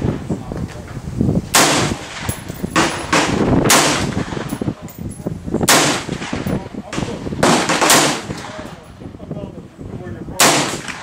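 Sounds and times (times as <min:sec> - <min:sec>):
rifle shots: 0:01.5 - 0:04.6, 0:05.7 - 0:08.6, 0:10.4 - 0:11.0.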